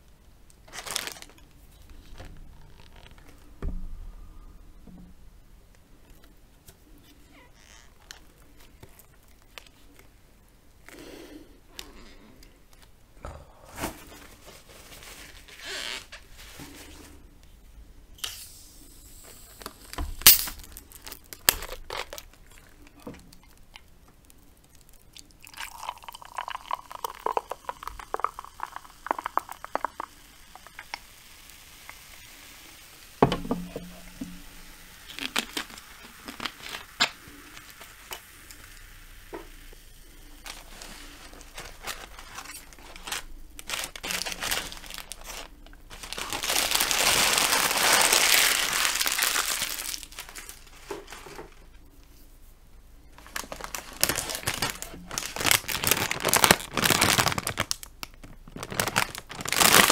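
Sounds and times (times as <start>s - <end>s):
paper crinkling: 0.6s - 3.6s, 13.8s - 17.2s, 19.6s - 27.8s, 33.2s - 38.6s, 40.2s - 51.7s, 53.2s - 59.9s
sharp thump: 3.6s - 5.2s
fizz hissing: 24.4s - 45.4s
soft drink pouring into glass: 25.2s - 30.1s.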